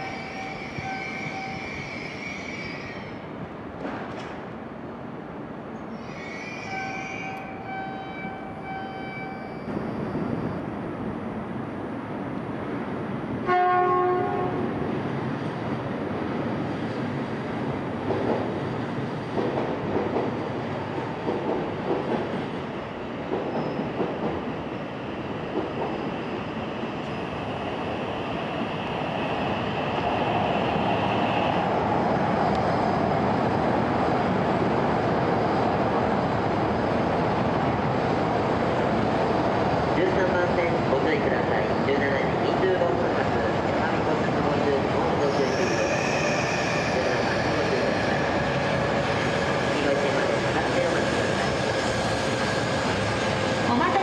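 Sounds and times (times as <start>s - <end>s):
train cars rumbling: 13.1s - 54.0s
train horn blast: 13.4s - 14.7s.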